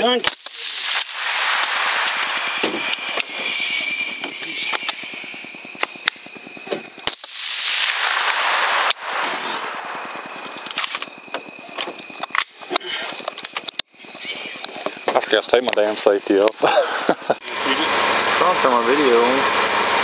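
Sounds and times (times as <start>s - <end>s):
rifle shots: 0.0s - 11.0s
high-pitched whine: 0.0s - 20.0s
rushing noise: 0.4s - 20.0s.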